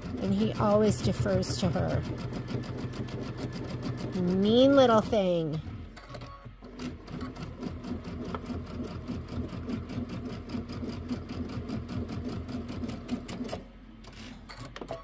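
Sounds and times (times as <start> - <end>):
sewing machine motor hum: 0.0 - 5.9, 6.6 - 13.7
sewing machine needle rhythm: 0.0 - 13.6.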